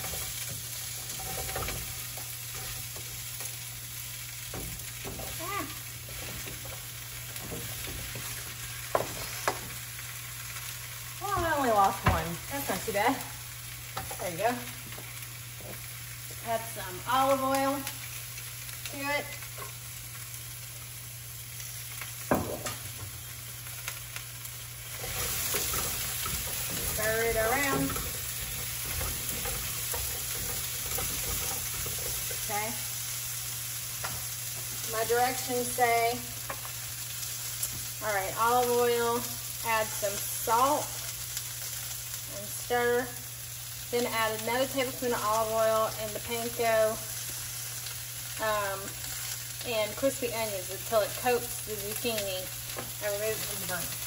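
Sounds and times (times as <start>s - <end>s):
zucchini sizzling in a frying pan: 0.0s - 54.0s.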